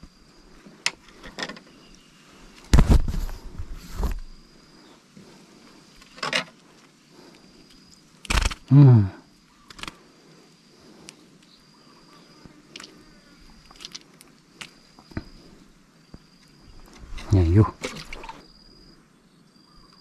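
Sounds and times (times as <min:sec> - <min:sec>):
person grunting: 0:08.7 - 0:09.2.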